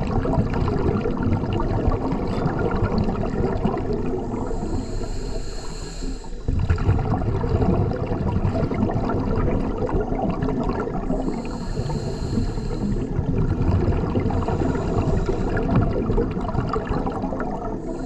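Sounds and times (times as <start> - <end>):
exhaled bubbles underwater: 0.0 - 18.0
regulator hissing inhale: 4.2 - 6.5, 11.0 - 13.2, 14.2 - 16.0, 17.8 - 18.0.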